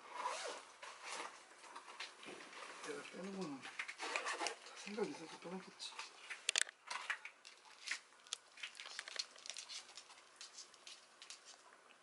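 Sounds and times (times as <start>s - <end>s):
cat crunching dry kibble: 6.4s - 12.0s.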